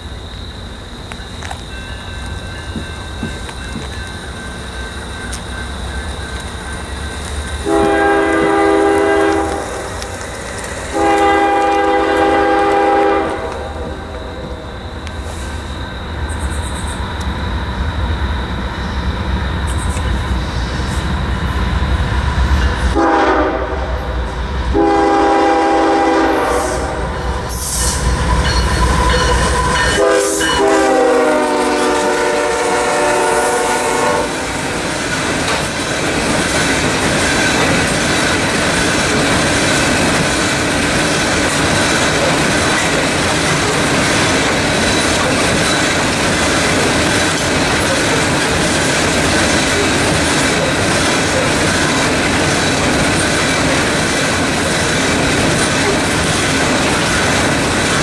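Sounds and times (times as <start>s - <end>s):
hopper cars clattering: 1.1s - 14.7s, 34.6s - 58.0s
locomotive horn blasts: 7.6s - 9.9s, 10.9s - 14.0s, 22.9s - 24.0s, 24.7s - 27.0s, 28.4s - 34.5s.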